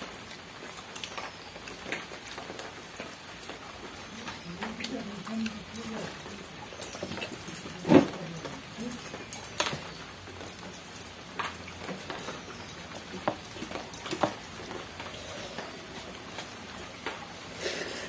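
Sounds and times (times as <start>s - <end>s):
chewing: 3.6s - 18.0s.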